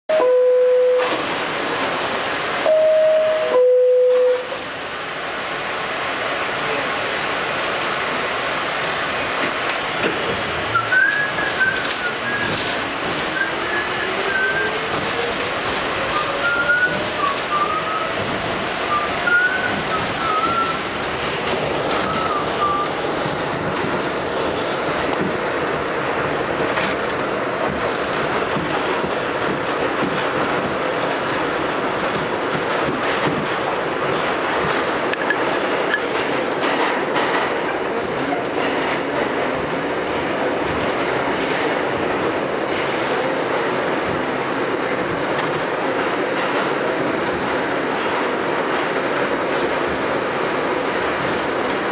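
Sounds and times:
subway wheels rumbling on rail: 0.1s - 51.9s
train and station hiss: 0.1s - 51.9s
two-tone door chime: 2.7s - 4.4s.

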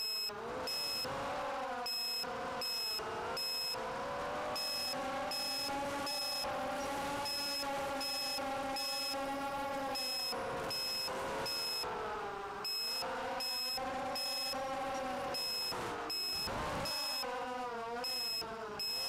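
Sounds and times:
high electronic beep: 0.0s - 1.1s, 1.9s - 3.8s, 4.6s - 6.4s, 7.3s - 9.2s, 10.0s - 11.8s, 12.7s - 13.0s, 18.1s - 19.0s
drone motors whining: 0.0s - 19.0s.

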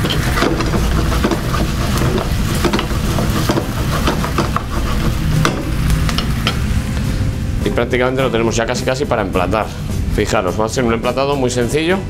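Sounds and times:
light sizzle: 0.0s - 8.3s
steady low rumble: 0.0s - 10.6s.

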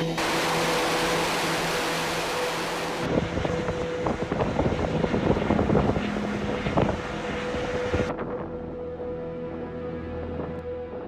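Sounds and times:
boat engine: 0.0s - 8.1s
rushing water: 0.0s - 8.1s
wind buffeting microphone: 0.2s - 8.3s.

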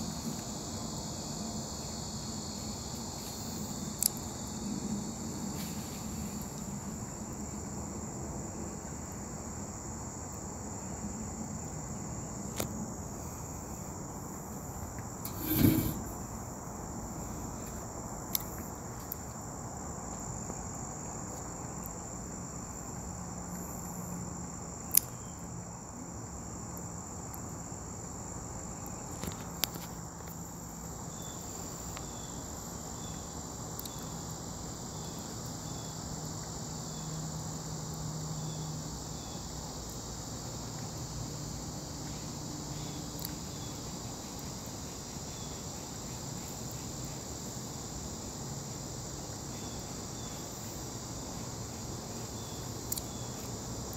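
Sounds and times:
insect chorus buzzing: 0.0s - 53.9s
short loud noise: 15.3s - 16.2s.

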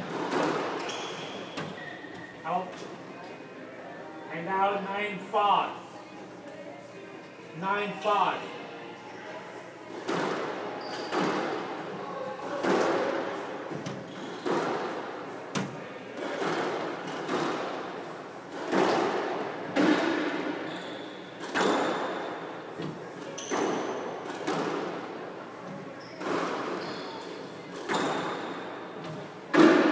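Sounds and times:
squash ball hitting rackets and walls: 0.0s - 1.8s, 9.9s - 11.8s, 12.4s - 29.9s.

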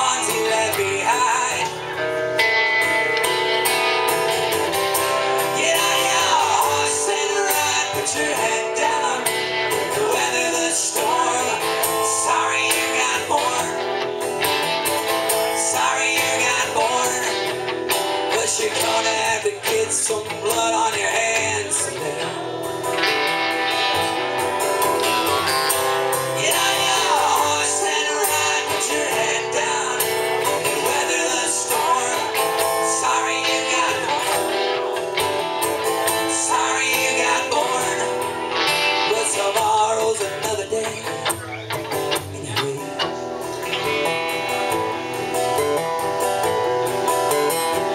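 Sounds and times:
man singing: 0.0s - 2.2s, 5.0s - 14.2s, 15.3s - 23.1s, 25.4s - 35.2s, 35.8s - 43.8s
acoustic guitar strummed: 0.0s - 47.9s
electric guitar: 0.0s - 47.9s.

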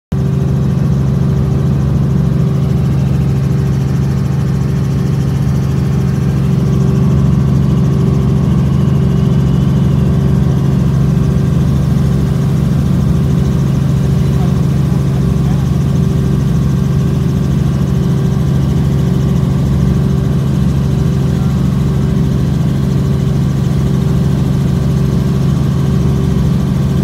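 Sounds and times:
helicopter engine and rotor drone: 0.1s - 27.0s.

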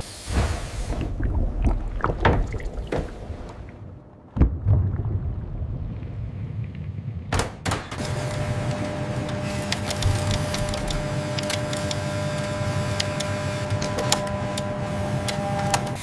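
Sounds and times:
machine humming: 7.9s - 16.0s.

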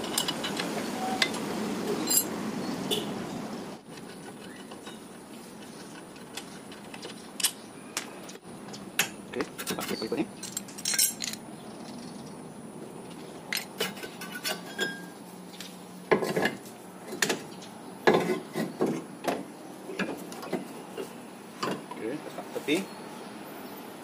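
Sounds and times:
metallic clinks and knocks: 8.7s - 12.1s
metal clatter: 9.0s - 11.4s.

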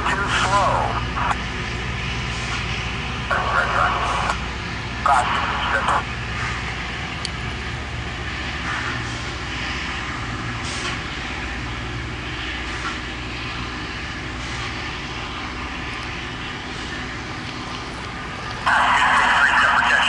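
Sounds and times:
distant diesel locomotive rumbling: 0.0s - 20.0s
short air hisses: 10.6s - 11.1s.

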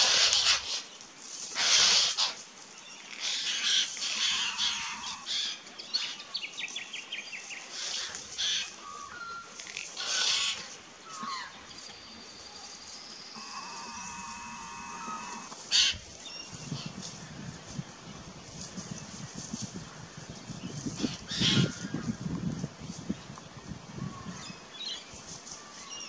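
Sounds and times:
birds giving rasping calls: 0.0s - 6.2s, 7.6s - 11.7s, 13.3s - 17.6s, 19.0s - 22.4s.

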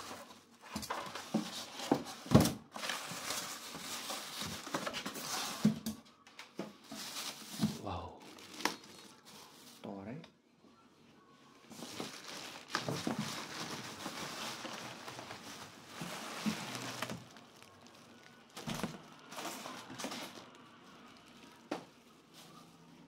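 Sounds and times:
plastic wrapping crinkling: 0.0s - 5.7s, 6.8s - 9.8s, 11.6s - 23.0s
cardboard rustling: 0.0s - 5.8s, 6.7s - 9.8s, 11.7s - 21.7s.

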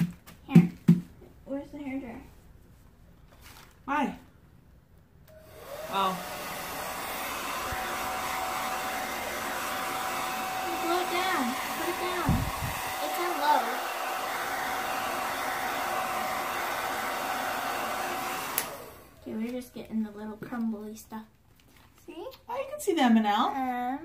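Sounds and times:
hair dryer blowing: 5.3s - 19.5s.

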